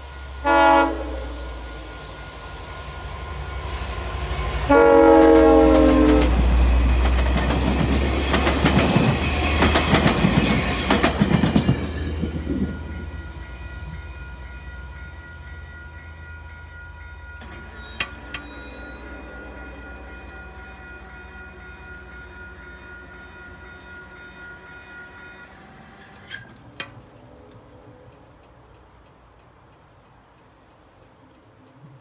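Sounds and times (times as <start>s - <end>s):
locomotive horn blast: 0.4s - 2.6s, 3.6s - 6.5s, 17.8s - 26.1s
train wheels clattering over rail joints: 5.8s - 12.7s.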